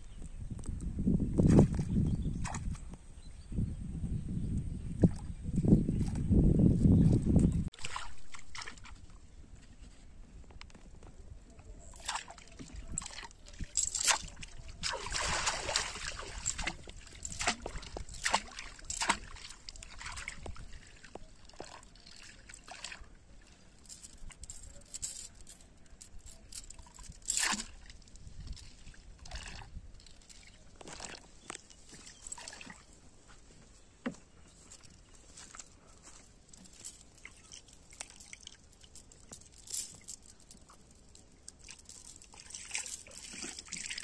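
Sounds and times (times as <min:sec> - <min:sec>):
water splashing and trickling: 0:07.0 - 0:09.7, 0:11.7 - 0:33.1, 0:34.6 - 0:44.0.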